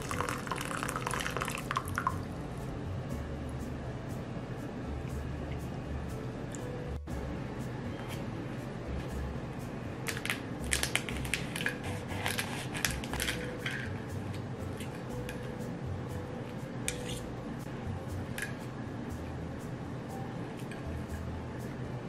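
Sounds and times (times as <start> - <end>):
pastry crackling under knife: 10.7 - 13.5.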